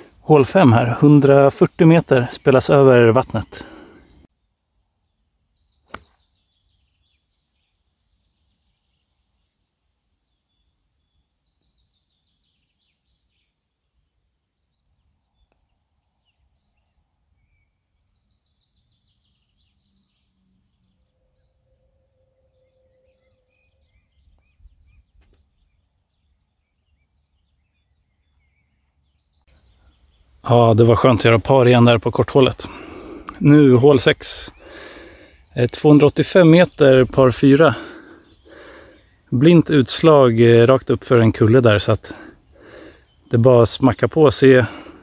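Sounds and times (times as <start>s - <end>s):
faint bird calls: 3.3s - 31.2s, 34.1s - 39.8s, 41.8s - 43.6s
golf club hitting ball: 5.9s - 6.2s.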